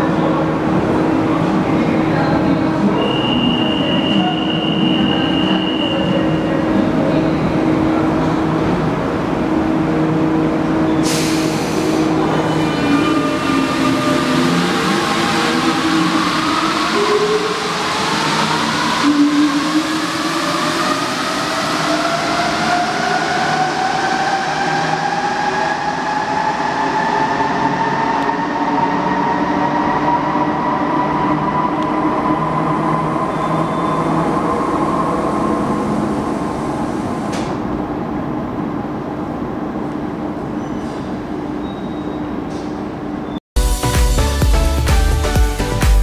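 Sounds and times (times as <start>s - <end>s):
train wheel and running noise: 35.6s - 38.0s.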